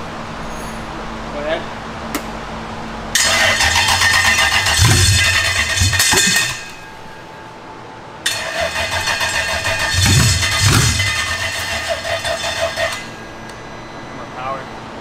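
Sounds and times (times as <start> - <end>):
engine cranking and sputtering: 3.2 - 6.9, 8.3 - 13.2.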